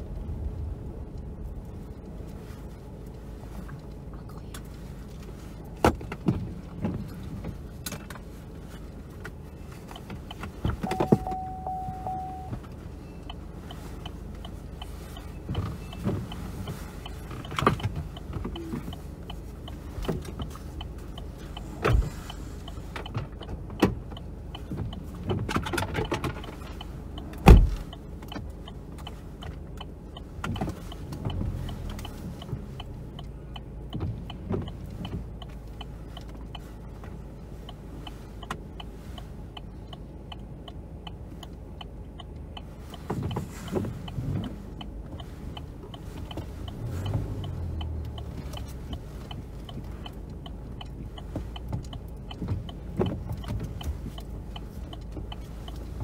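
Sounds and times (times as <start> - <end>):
low rumbles: 0.0 - 22.7
car cabin hum: 0.0 - 56.0
turn signal ticking: 0.0 - 56.0.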